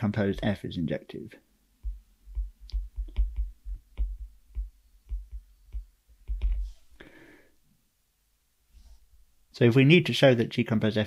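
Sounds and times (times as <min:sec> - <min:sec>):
stylus tapping on a tablet: 0:01.8 - 0:06.8.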